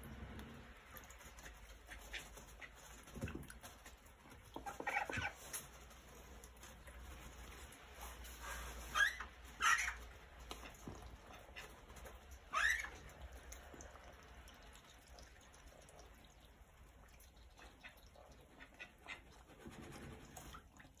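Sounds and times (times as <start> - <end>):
ducks calling: 4.5 - 5.4, 8.9 - 11.9.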